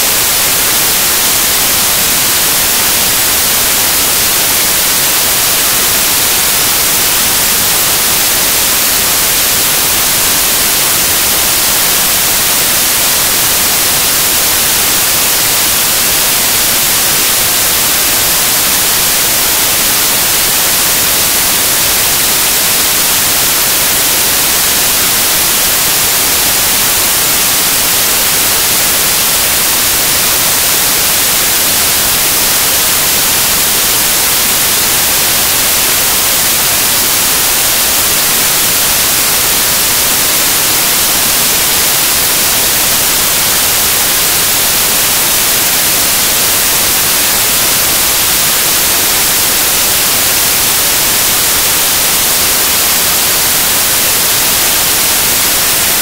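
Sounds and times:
white noise hiss: 0:00.0 - 0:56.0.

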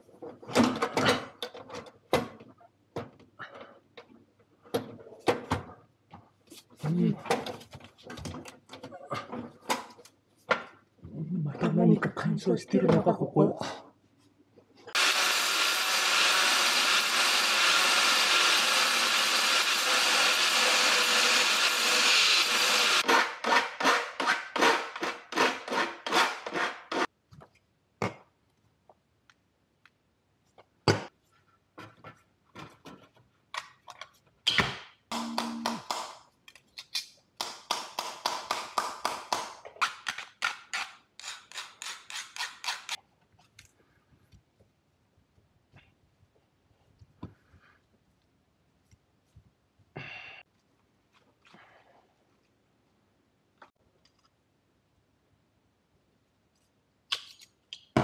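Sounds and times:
angle grinder cutting steel: 0:15.0 - 0:23.1.

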